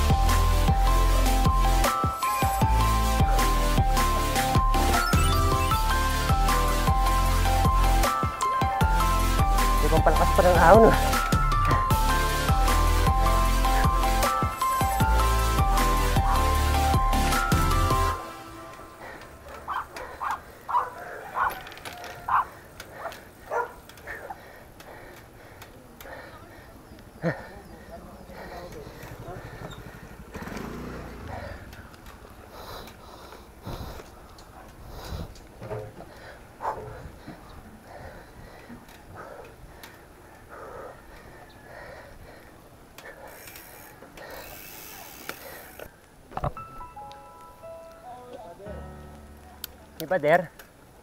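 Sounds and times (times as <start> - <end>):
bicycle ticking and clicking: 19.1 - 36.4, 37.2 - 46.2
dog barking: 19.6 - 21.6, 22.3 - 24.4, 36.6 - 37.0.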